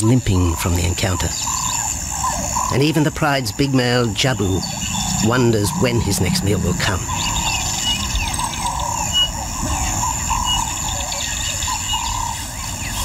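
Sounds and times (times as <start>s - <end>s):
insect drone: 0.0s - 13.0s
wavering bird call: 1.3s - 3.0s, 3.7s - 13.0s
steady low rumble: 3.4s - 9.6s.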